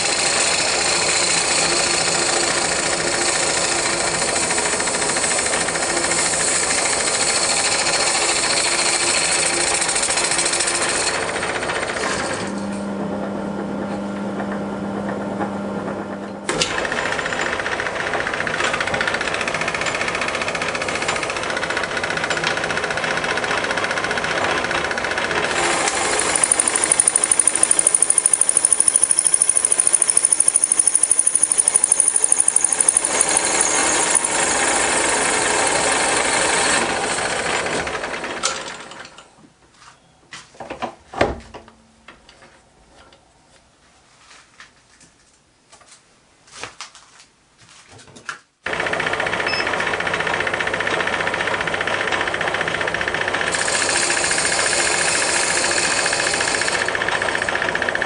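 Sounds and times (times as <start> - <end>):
lathe rattling: 0.0 - 12.8, 16.5 - 39.2, 48.7 - 58.0
lathe cutting hiss: 25.5 - 37.5, 53.5 - 58.0.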